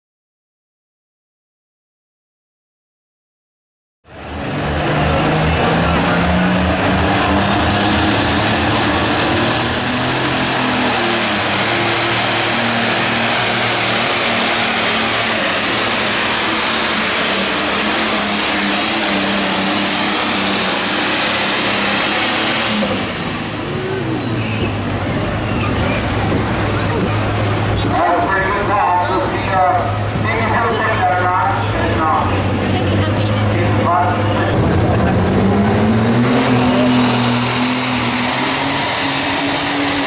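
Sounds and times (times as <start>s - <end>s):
diesel tractor engine full throttle: 4.0s - 40.0s
high turbo whine: 4.1s - 40.0s.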